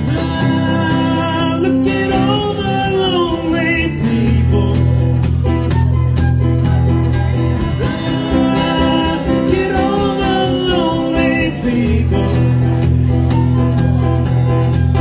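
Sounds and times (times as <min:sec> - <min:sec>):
country-rock band playing: 0:00.0 - 0:15.0
drums: 0:00.0 - 0:15.0
electric bass: 0:00.0 - 0:15.0
strummed acoustic guitars: 0:00.0 - 0:15.0
flute melody: 0:04.9 - 0:11.4, 0:12.3 - 0:15.0.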